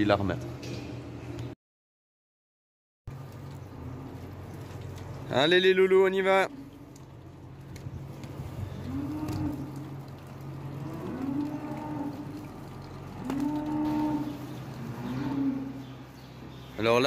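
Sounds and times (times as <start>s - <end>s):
cattle mooing: 8.6s - 16.0s.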